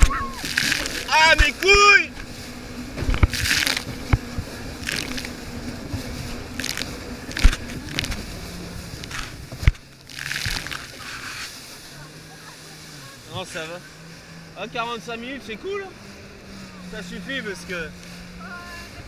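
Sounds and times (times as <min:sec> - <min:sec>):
hull slapping waves: 0:00.0 - 0:19.0
jet ski engine: 0:00.0 - 0:19.0.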